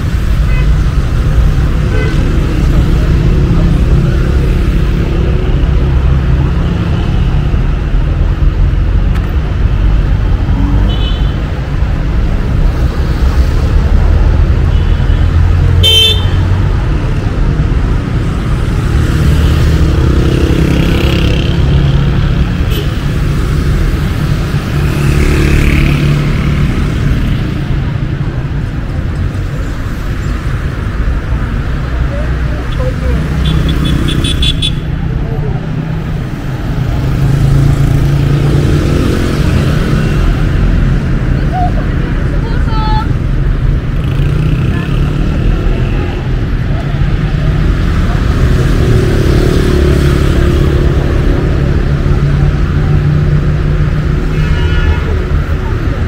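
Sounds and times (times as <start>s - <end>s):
rumble of passing cars: 0.0s - 56.0s
car horn toot: 15.8s - 16.4s, 54.3s - 55.1s.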